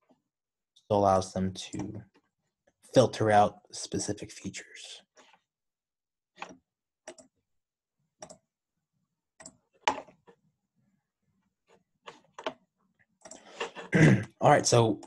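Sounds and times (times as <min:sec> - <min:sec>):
computer mouse clicking: 0:06.4 - 0:07.3, 0:08.2 - 0:08.4, 0:13.2 - 0:13.9.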